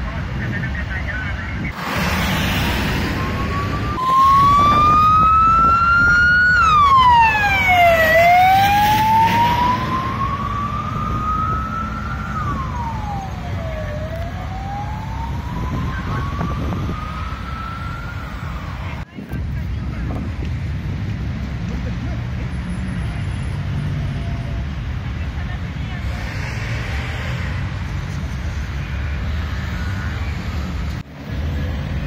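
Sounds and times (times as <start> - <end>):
traffic rumble: 0.0 - 32.0
emergency vehicle siren wailing: 0.4 - 19.0.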